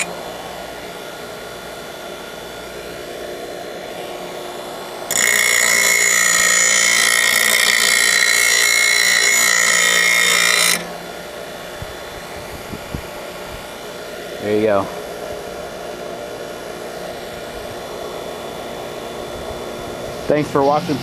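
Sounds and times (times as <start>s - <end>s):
blade grinding with high ringing: 5.0s - 12.0s
bench grinder spinning: 5.1s - 12.2s.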